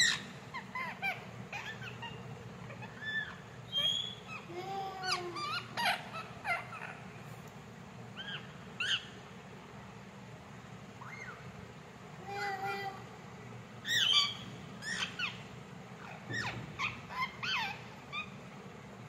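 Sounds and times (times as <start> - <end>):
parakeet chirping: 0.0 - 7.1, 8.2 - 9.2, 11.0 - 11.5, 13.8 - 18.4.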